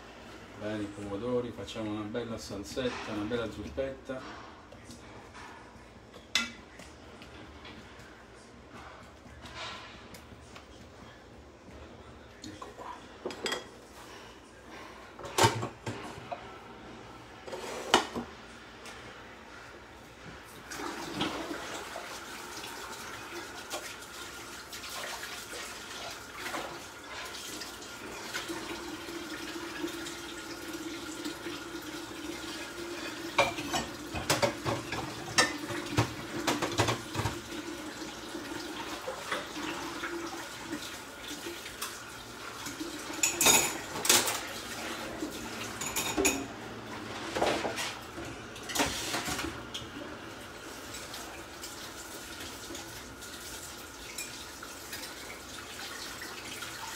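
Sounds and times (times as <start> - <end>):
pots and utensils clattering: 2.6 - 6.7, 8.7 - 10.2, 12.5 - 16.5, 17.4 - 18.3, 20.7 - 21.9, 32.4 - 37.7, 41.6 - 49.9
water running from tap: 20.5 - 47.0, 48.1 - 56.9.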